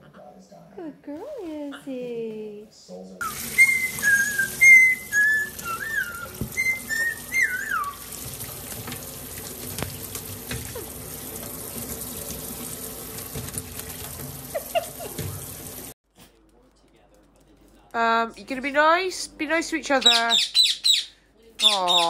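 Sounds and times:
short whistled notes: 0:03.2 - 0:08.0
tap water splashing into sink: 0:03.2 - 0:15.9.

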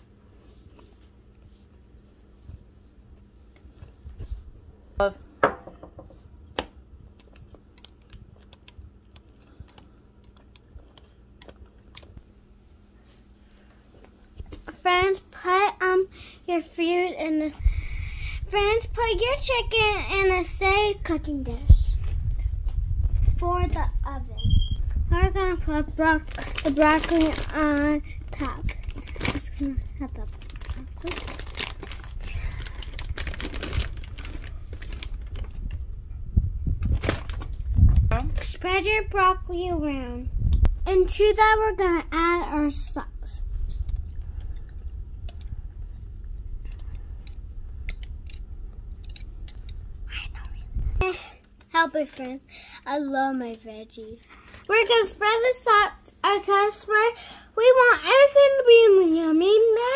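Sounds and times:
plastic bag crinkling: 0:26.0 - 0:35.8, 0:36.8 - 0:38.6.

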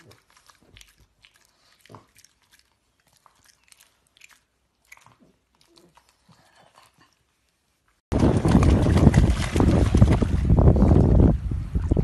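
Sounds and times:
dog licking and smacking: 0:00.0 - 0:07.1.

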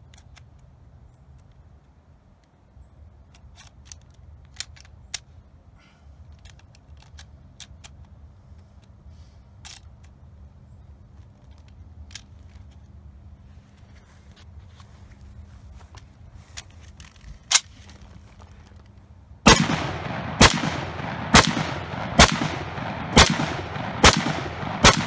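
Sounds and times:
rifle action clicks: 0:03.2 - 0:05.3, 0:06.3 - 0:08.2, 0:09.6 - 0:10.2, 0:16.6 - 0:25.0
low steady rumble: 0:08.0 - 0:25.0.

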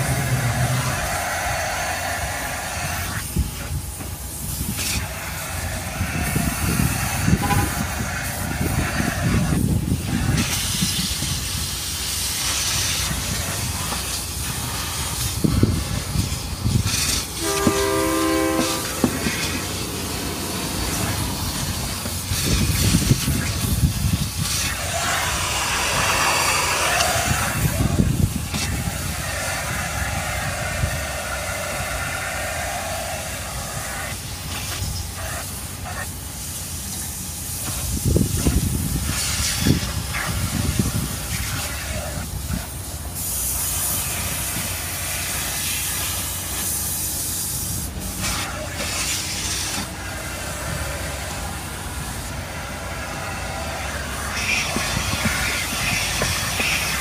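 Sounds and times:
vacuum cleaner running: 0:15.9 - 0:22.4, 0:24.6 - 0:29.2
brief hooting tone: 0:17.4 - 0:19.6.

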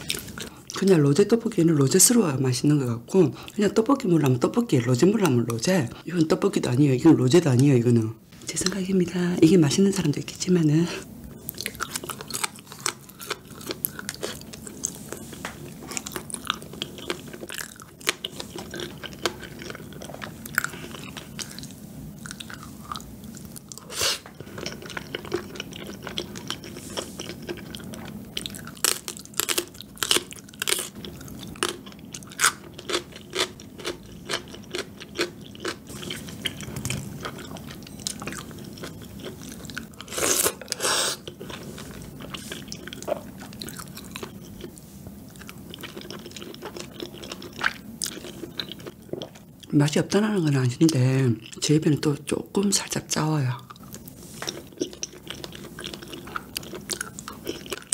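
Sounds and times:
person chewing with mouth clicks: 0:11.4 - 0:49.7, 0:53.6 - 0:57.9.

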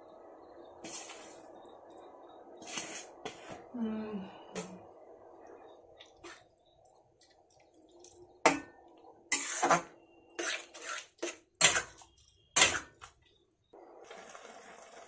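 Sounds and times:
faint steady hum: 0:00.0 - 0:09.3
metal spatula scraping wok: 0:09.3 - 0:13.0.

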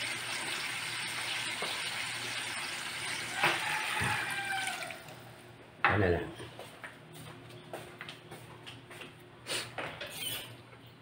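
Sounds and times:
broth boiling: 0:00.0 - 0:05.4.

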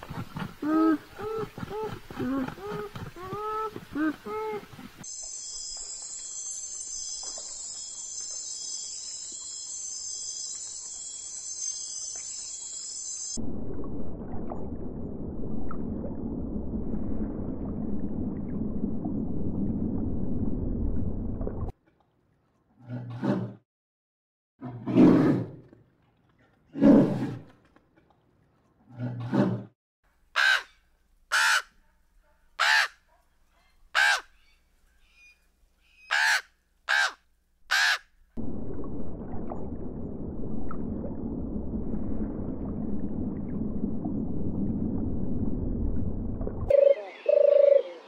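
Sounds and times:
raven cawing: 0:30.4 - 0:30.7, 0:32.6 - 0:32.9, 0:34.0 - 0:34.3, 0:36.1 - 0:38.0
underwater rush of water: 0:38.4 - 0:46.7.

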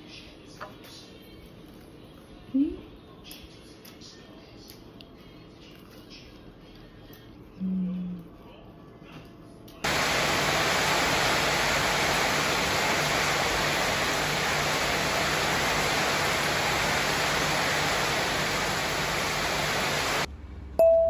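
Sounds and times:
heavy rain on a metal roof: 0:09.9 - 0:20.3.

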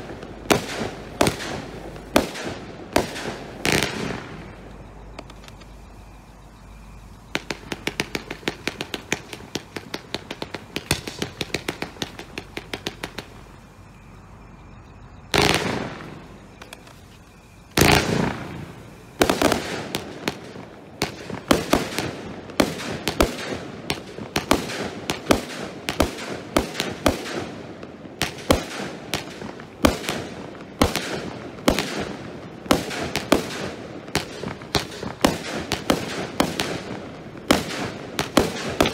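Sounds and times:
fireworks bursts: 0:00.0 - 0:14.1, 0:15.3 - 0:38.9
fireworks sharp bangs: 0:00.0 - 0:14.2, 0:15.0 - 0:38.9
fireworks small pops: 0:05.1 - 0:05.8, 0:16.6 - 0:18.0.

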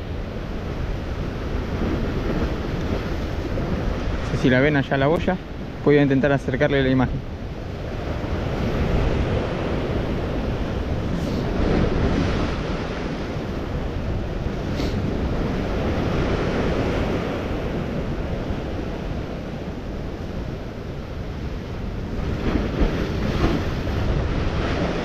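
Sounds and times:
wind buffeting microphone: 0:00.0 - 0:25.0
sea breaking against rocks: 0:07.8 - 0:19.5, 0:21.4 - 0:25.0.

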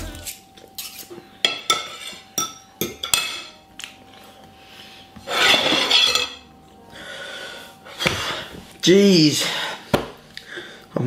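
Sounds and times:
cutlery clinking on plate: 0:00.7 - 0:03.6, 0:05.4 - 0:06.4.

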